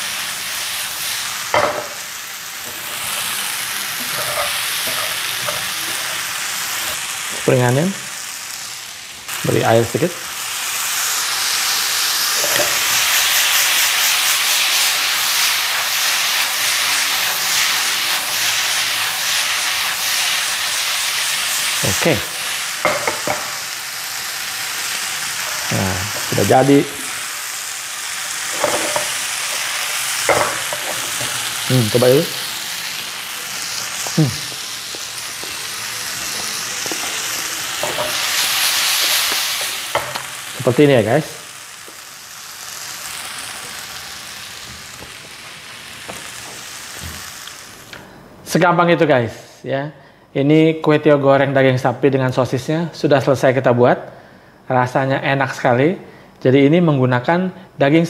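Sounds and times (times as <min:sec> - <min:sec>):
noodles sizzling in a hot wok: 0:00.0 - 0:47.9
person humming: 0:34.0 - 0:34.6.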